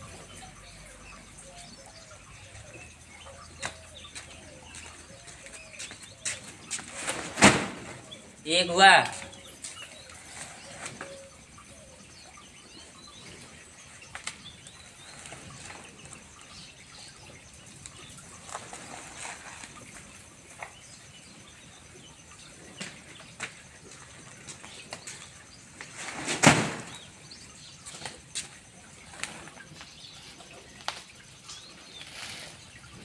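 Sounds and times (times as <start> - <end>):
sack thumping: 6.9 - 8.0, 25.9 - 27.0.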